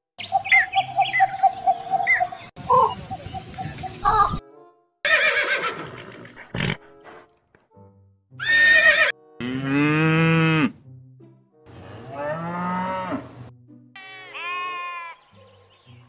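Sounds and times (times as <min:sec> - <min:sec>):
horses neighing: 0:05.1 - 0:07.0, 0:08.4 - 0:10.7
faint background music: 0:06.7 - 0:16.0.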